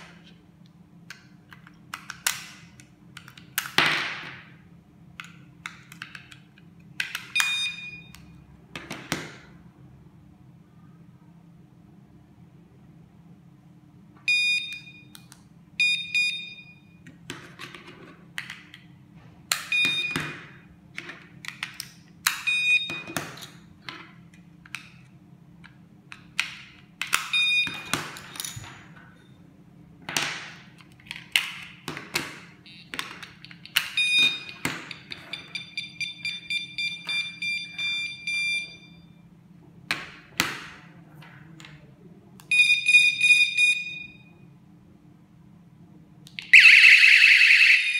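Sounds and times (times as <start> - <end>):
short high alarm beeps: 14.3 - 15.1, 46.6 - 47.9.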